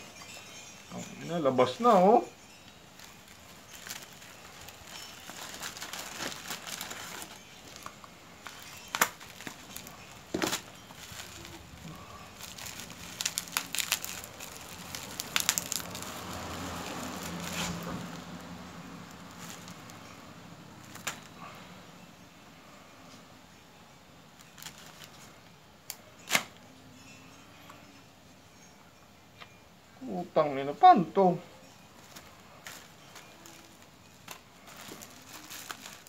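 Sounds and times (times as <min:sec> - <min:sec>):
plastic wrap crinkling and tearing: 0:03.0 - 0:20.1, 0:20.8 - 0:21.3, 0:24.4 - 0:25.3, 0:32.0 - 0:36.0.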